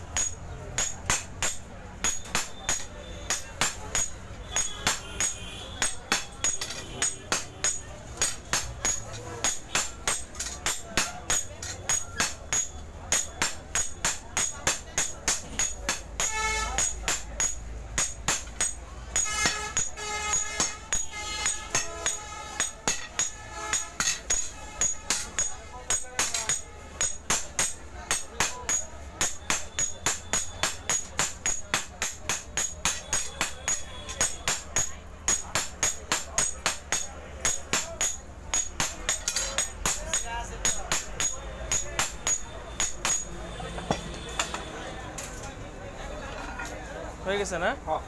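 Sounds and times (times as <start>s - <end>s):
hammers striking metal on anvil: 0.0s - 45.4s.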